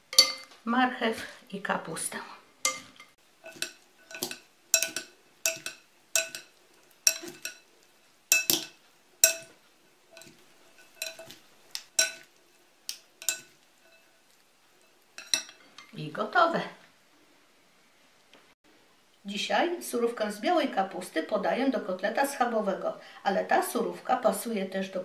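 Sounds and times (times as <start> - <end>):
glass bowl ringing: 0.1 - 0.5.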